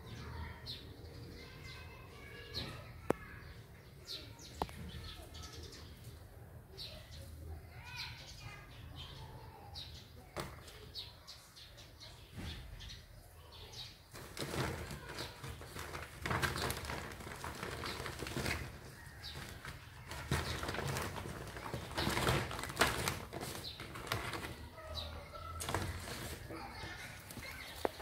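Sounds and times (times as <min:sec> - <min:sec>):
kittens scrabbling: 0:14.1 - 0:28.0
plastic sack rustling and crinkling: 0:14.1 - 0:28.0.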